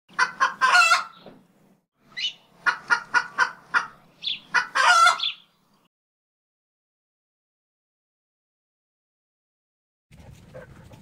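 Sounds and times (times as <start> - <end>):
hen clucking: 0.1 - 1.4, 2.1 - 5.6
poultry calling: 0.1 - 1.4, 2.1 - 5.6.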